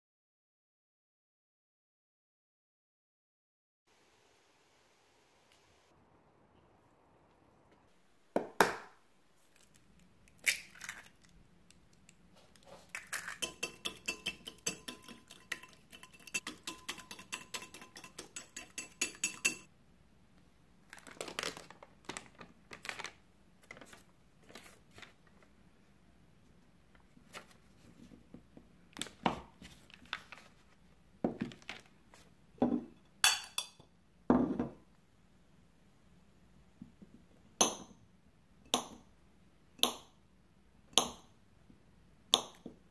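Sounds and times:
butter wrapper crinkling: 0:09.5 - 0:11.4, 0:20.8 - 0:25.3
whisk beating against plate: 0:13.1 - 0:19.7.

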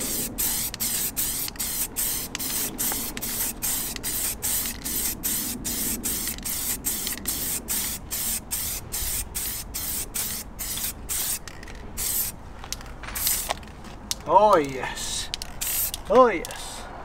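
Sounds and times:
spray paint can hissing: 0:00.0 - 0:12.4, 0:13.2 - 0:13.6, 0:15.3 - 0:16.1.

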